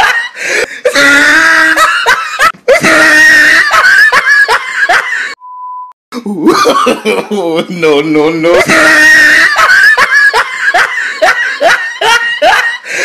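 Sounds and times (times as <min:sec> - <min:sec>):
comic laughing and screaming: 0:00.0 - 0:05.4, 0:06.2 - 0:07.8, 0:08.5 - 0:13.0
steady beep tone: 0:05.4 - 0:06.0.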